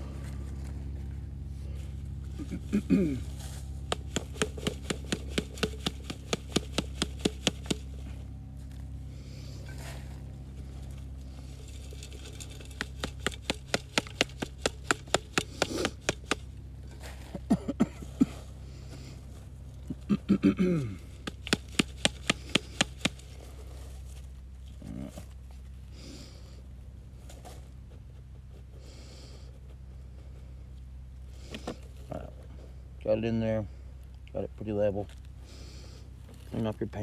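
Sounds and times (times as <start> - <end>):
mesh sifter rattling: 11.3 - 15.4.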